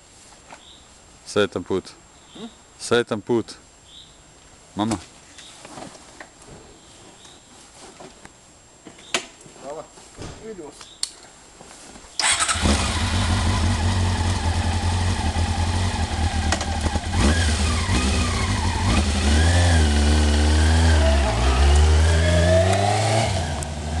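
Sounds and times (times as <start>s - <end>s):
motorcycle engine revving: 12.2s - 24.0s.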